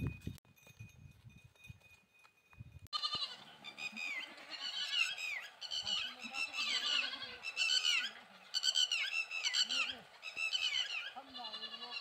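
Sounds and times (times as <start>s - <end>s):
high-pitched animal calls: 3.0s - 12.0s.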